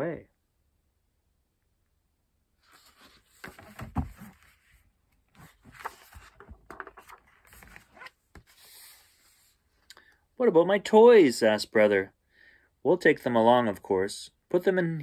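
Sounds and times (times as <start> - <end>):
book pages turning: 2.6 - 9.6
paper rustling: 2.6 - 9.6.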